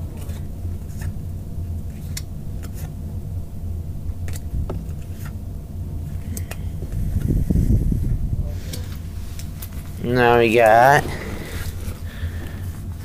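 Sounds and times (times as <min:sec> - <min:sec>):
steady low hum: 0:00.0 - 0:13.0
cards snapping and sliding: 0:00.2 - 0:01.1.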